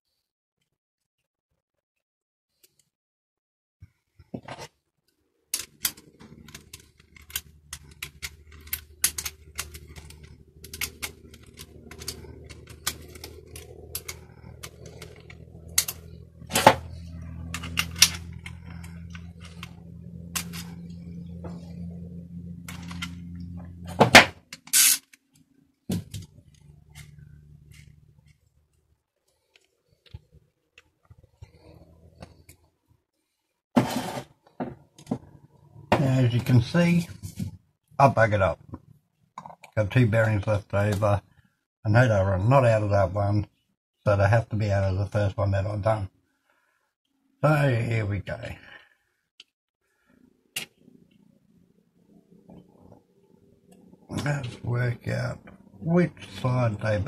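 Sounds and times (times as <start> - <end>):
hands handling parts and tools: 4.2 - 21.9, 22.6 - 23.3
steady low hum: 5.5 - 24.6.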